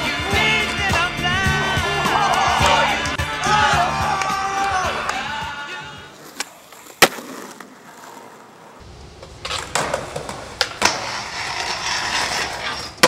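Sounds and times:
skateboard clacking: 0.0s - 5.3s, 6.1s - 13.0s
skateboard wheels rolling on concrete: 0.0s - 13.0s
skateboard snap: 2.1s - 3.2s, 6.2s - 8.4s, 9.1s - 11.7s.

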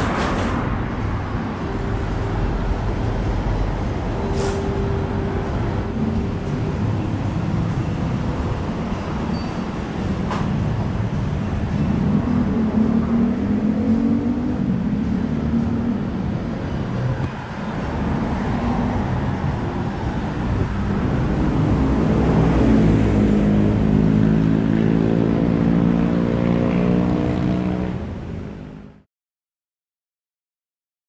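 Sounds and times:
heavy engine hum: 0.0s - 29.0s
vehicle engines running: 0.0s - 29.0s
steady traffic rumble: 0.0s - 29.1s.

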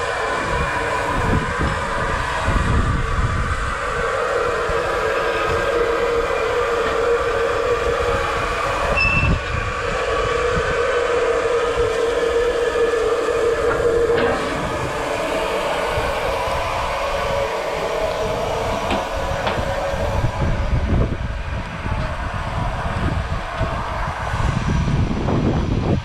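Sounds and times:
constant hum: 0.0s - 26.0s
steam locomotive hissing: 0.0s - 26.0s
high squeak: 8.9s - 9.7s.

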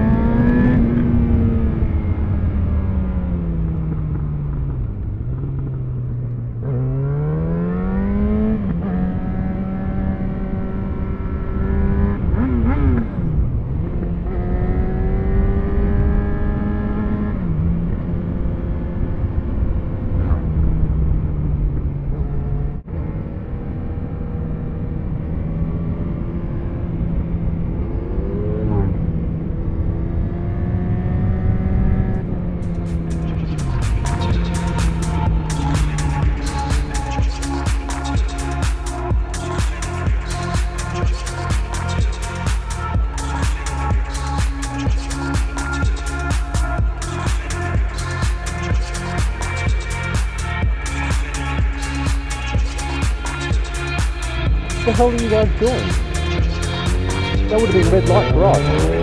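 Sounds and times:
motorcycle engine: 0.0s - 18.0s, 27.0s - 59.0s.

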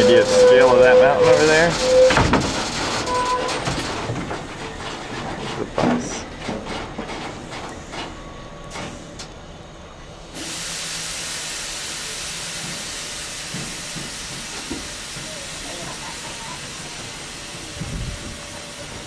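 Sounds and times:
train running noise: 0.0s - 19.0s
wind thumps on microphone: 17.8s - 18.4s.

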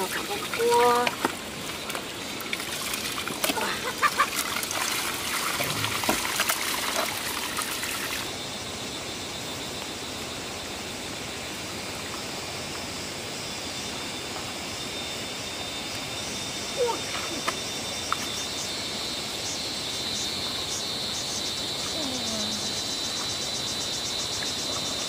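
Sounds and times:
water trickling and splashing: 0.0s - 8.4s.

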